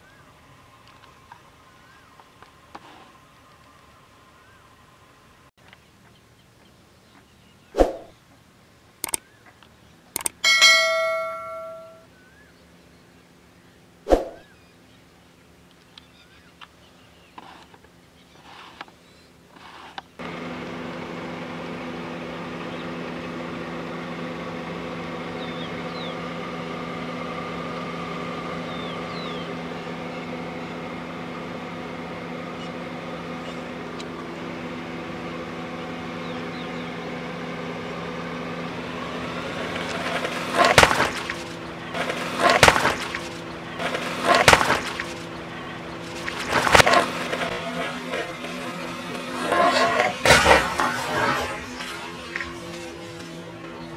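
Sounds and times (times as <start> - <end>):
car engine idling: 20.2 - 50.8
watermelons crunching and bursting: 39.5 - 51.6.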